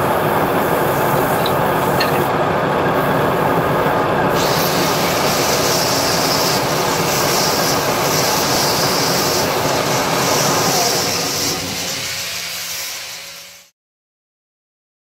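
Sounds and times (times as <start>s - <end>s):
wood lathe running: 0.0s - 12.9s
sandpaper hissing against wood: 4.4s - 13.7s.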